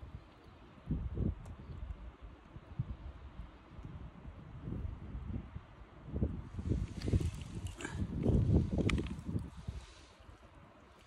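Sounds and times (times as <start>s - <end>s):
wind buffeting microphone: 0.0s - 10.7s
faint rustle: 6.5s - 11.0s.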